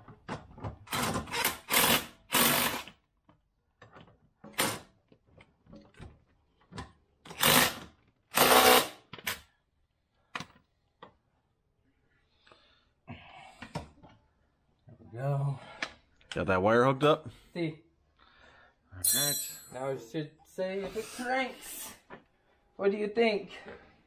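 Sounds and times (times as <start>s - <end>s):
impact wrench bursts: 0.9s - 2.9s, 7.4s - 9.0s.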